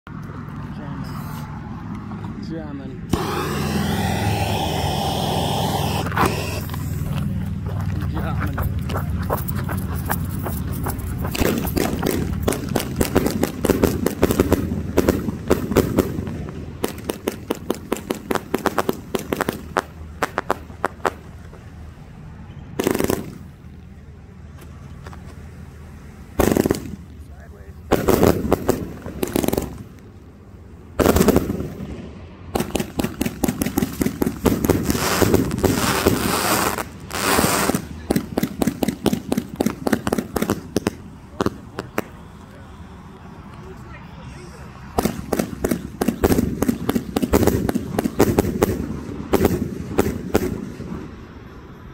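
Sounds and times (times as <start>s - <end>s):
firework shots and bursts: 3.1s - 7.2s, 10.0s - 21.3s, 22.8s - 23.8s, 26.2s - 30.2s, 30.9s - 42.9s, 44.9s - 51.4s.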